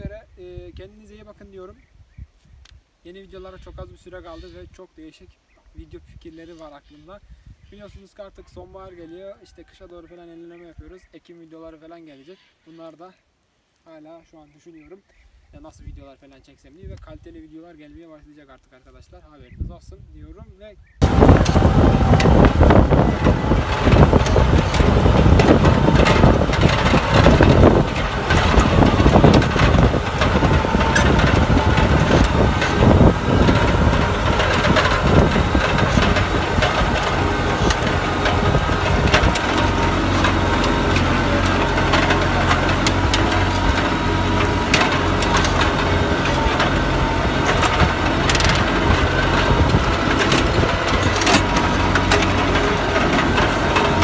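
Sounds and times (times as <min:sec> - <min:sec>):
soil crunching against plough: 0:21.0 - 0:54.0
tractor engine pulling: 0:21.0 - 0:54.0.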